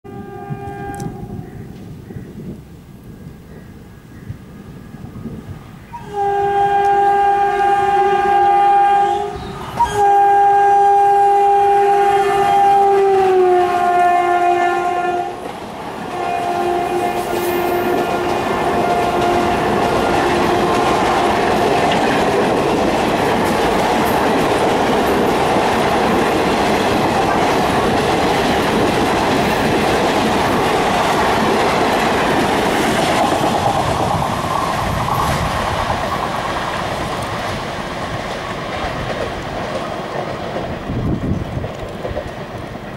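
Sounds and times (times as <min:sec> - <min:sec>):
locomotive horn: 0:00.1 - 0:01.4, 0:05.9 - 0:15.4, 0:16.0 - 0:21.8
train coaches rolling on rails: 0:00.1 - 0:42.9.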